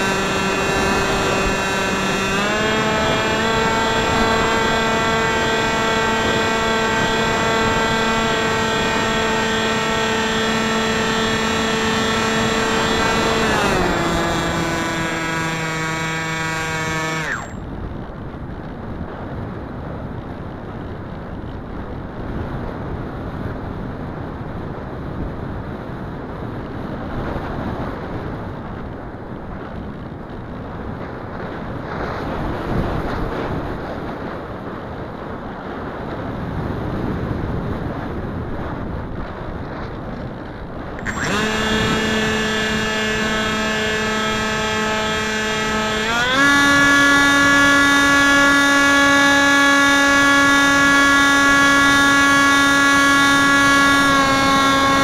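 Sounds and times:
electric motor and propeller whining: 0:00.0 - 0:17.8, 0:40.9 - 0:55.0
wind rushing over microphone: 0:00.0 - 0:55.0.

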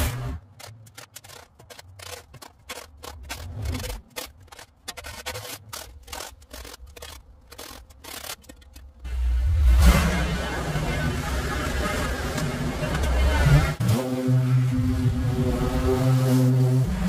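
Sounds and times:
scraper blade scraping asphalt: 0:00.0 - 0:09.1.

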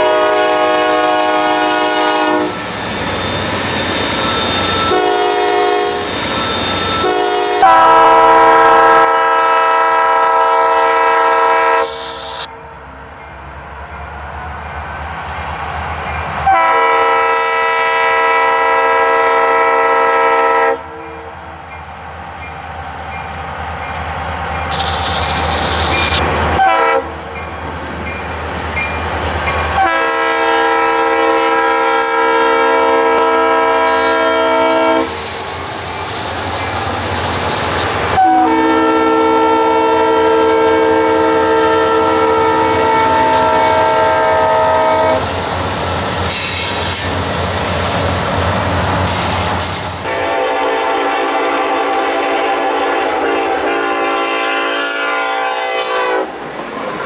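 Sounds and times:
locomotive air horn blasts: 0:00.0 - 0:02.7, 0:04.7 - 0:06.1, 0:06.8 - 0:12.9, 0:16.4 - 0:21.4, 0:24.6 - 0:27.2, 0:29.7 - 0:35.2, 0:38.2 - 0:45.3, 0:50.0 - 0:56.4
rumbling engine and rail noise: 0:00.0 - 0:57.0.

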